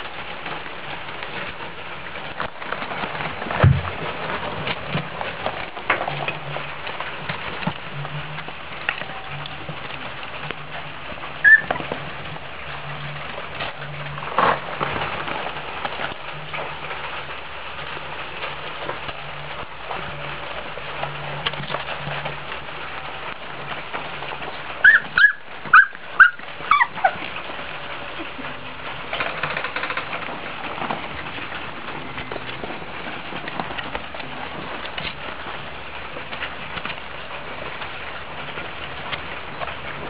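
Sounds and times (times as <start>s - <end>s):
constant hiss: 0.0s - 40.0s
puppies whimpering: 11.4s - 11.7s, 24.8s - 27.4s
puppies yelping and squealing: 11.4s - 11.7s, 24.8s - 27.3s.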